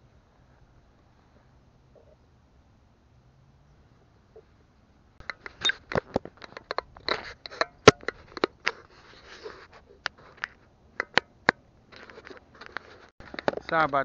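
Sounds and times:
soft rustle: 0:08.2 - 0:10.7, 0:11.9 - 0:14.0.

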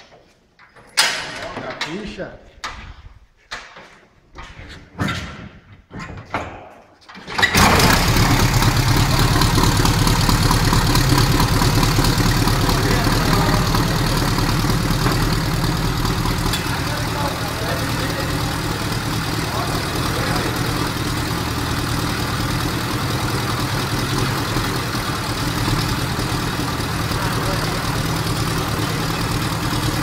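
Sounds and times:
old car engine idling: 0:07.4 - 0:30.0.

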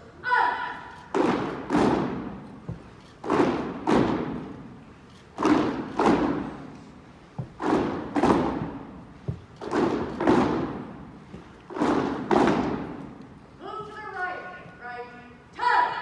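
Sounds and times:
boots stamping on wooden floor: 0:01.2 - 0:04.5, 0:05.4 - 0:13.0.

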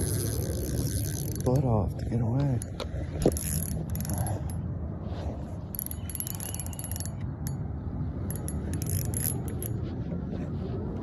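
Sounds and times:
fishing reel clicking: 0:00.0 - 0:01.7, 0:02.6 - 0:04.6, 0:05.8 - 0:07.6, 0:08.3 - 0:09.8.

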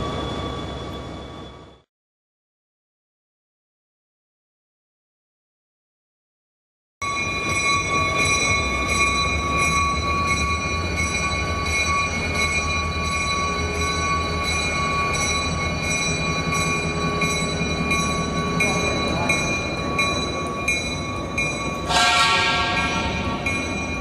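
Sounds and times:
diesel locomotive engine rumble: 0:00.0 - 0:01.9, 0:07.0 - 0:24.0.

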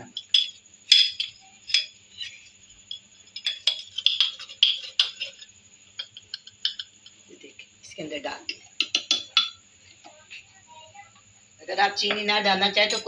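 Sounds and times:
teaspoon clinking against glass: 0:00.0 - 0:07.2, 0:08.5 - 0:09.6.

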